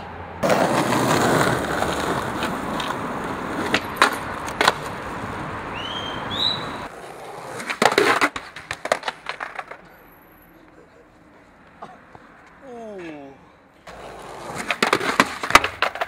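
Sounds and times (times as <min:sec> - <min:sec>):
skateboard wheels rolling on pavement: 0:00.0 - 0:12.6, 0:13.8 - 0:16.0
skateboard hitting ground: 0:00.4 - 0:10.0, 0:13.9 - 0:16.0.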